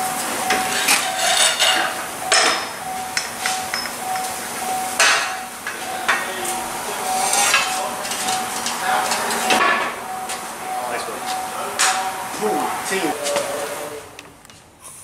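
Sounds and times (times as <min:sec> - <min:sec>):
metal scraping: 0:00.4 - 0:02.8
metal clanks: 0:00.4 - 0:12.1.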